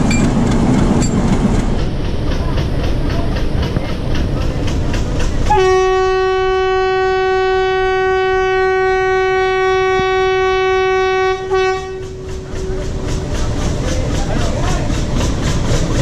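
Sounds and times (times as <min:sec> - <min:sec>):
moving train rumble: 0:00.0 - 0:16.0
locomotive horn blast: 0:05.5 - 0:12.9.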